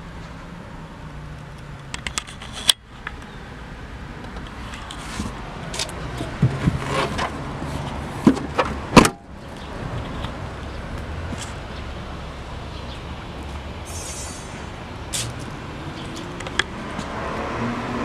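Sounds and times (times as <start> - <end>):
car liftgate slamming shut: 8.9 - 9.2.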